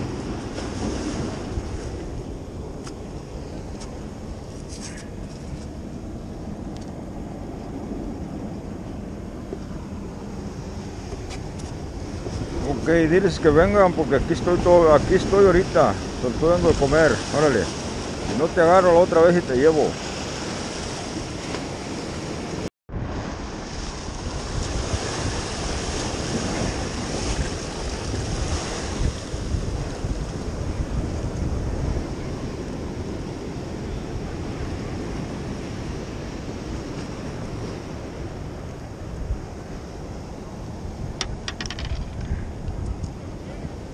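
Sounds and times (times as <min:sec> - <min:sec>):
surf breaking against rocks: 0:00.0 - 0:05.8, 0:23.2 - 0:33.6
wind buffeting microphone: 0:00.0 - 0:43.9.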